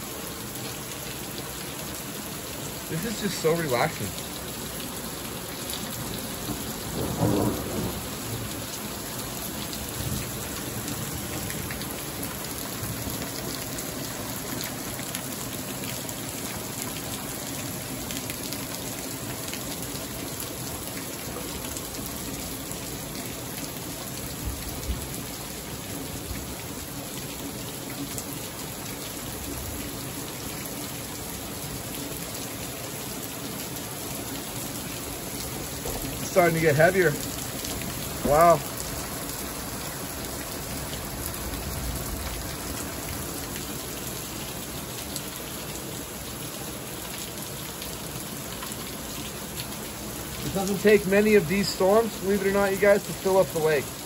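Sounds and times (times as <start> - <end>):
heavy rain pouring: 0.0 - 54.0
thunder rumble: 6.9 - 8.5.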